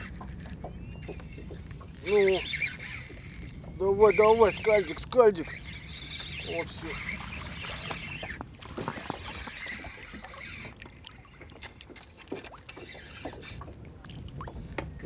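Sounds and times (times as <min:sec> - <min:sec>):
wind rumble on microphone: 0:13.0 - 0:15.0.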